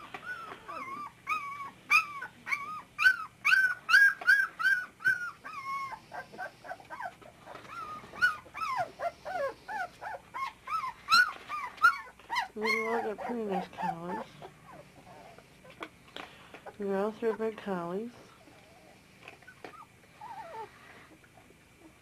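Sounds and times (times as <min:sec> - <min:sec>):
puppies whimpering and yipping: 0:00.0 - 0:15.9, 0:18.3 - 0:22.0.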